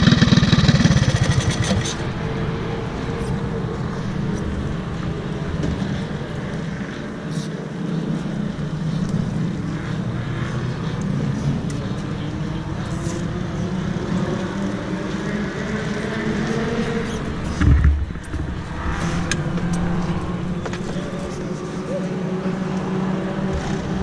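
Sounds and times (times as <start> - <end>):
kart engine idling: 0.0 - 7.8.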